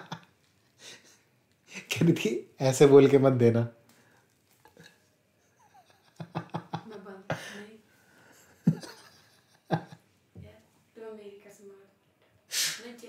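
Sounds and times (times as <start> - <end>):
breaths: 0.8 - 1.9, 3.9 - 4.4, 7.3 - 8.6
soft laughter: 4.8 - 7.6, 8.4 - 10.0.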